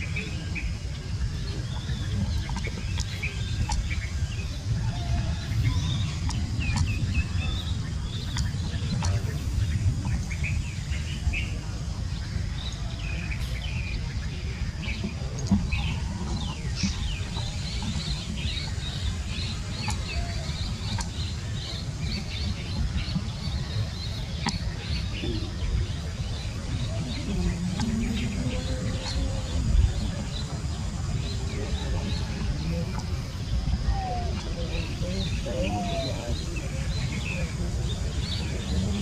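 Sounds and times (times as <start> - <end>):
small birds chirping: 0.0 - 39.0
steady low rumble: 0.0 - 39.0.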